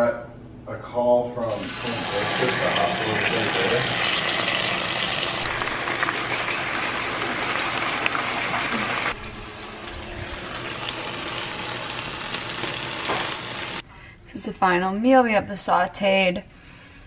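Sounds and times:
fish sizzling in a frying pan: 1.6 - 9.2, 10.3 - 13.8
small crackles: 10.5 - 13.8.

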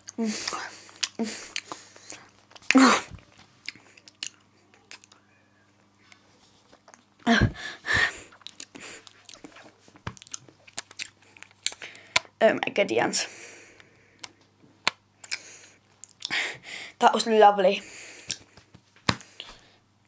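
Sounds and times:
child chewing chocolate: 0.0 - 5.3, 6.0 - 12.4, 13.6 - 16.7.

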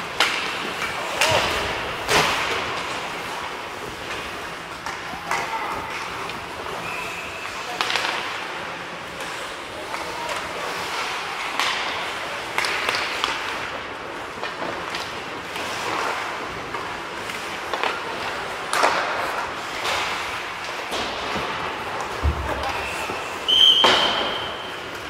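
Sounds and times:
hockey sticks and puck clacking: 0.0 - 25.0
skate blades scraping ice: 0.0 - 25.0.

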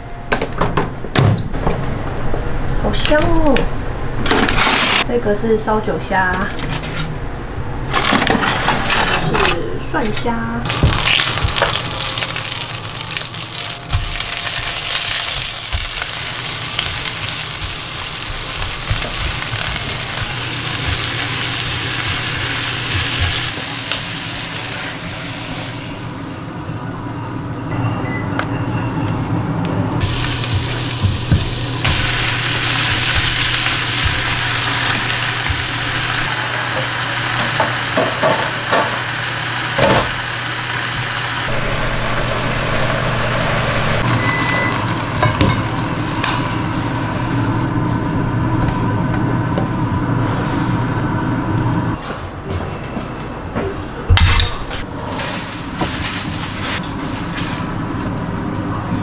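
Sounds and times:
cabbage sizzling in a pan: 10.7 - 26.2, 30.0 - 41.5
steady low hum: 41.4 - 54.1.

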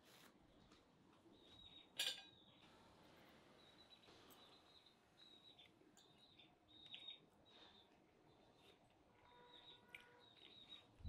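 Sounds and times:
faint bird chirps: 0.5 - 11.0
cutlery clinking on ceramic plate: 2.0 - 2.4.

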